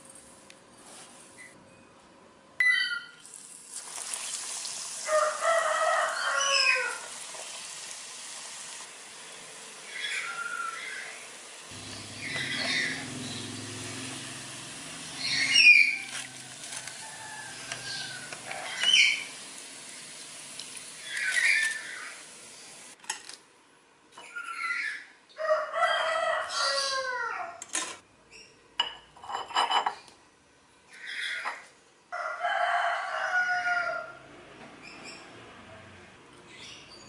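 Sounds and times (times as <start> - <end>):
hot oil sizzling: 3.3 - 23.0
rooster crowing: 5.0 - 7.1, 15.2 - 19.2, 25.4 - 27.6, 32.1 - 34.3.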